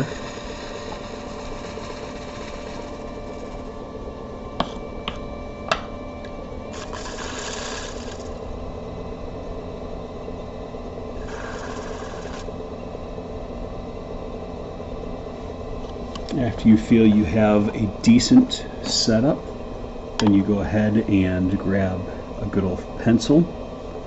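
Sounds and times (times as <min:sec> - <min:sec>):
hissing scrapes of clay: 0:00.0 - 0:03.6
pottery wheel motor hum: 0:00.0 - 0:24.0.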